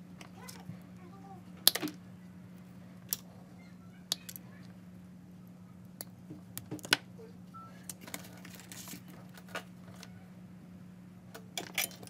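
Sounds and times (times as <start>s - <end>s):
steady low hum: 0.0s - 12.0s
wire cutters snipping wire: 1.6s - 2.0s.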